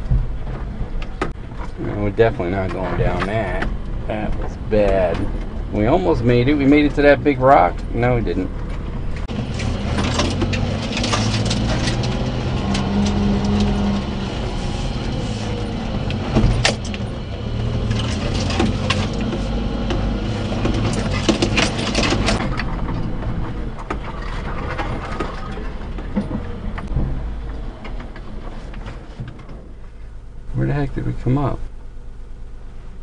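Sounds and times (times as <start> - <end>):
cab and load rattling: 0.0 - 31.6
truck engine running: 0.0 - 33.0.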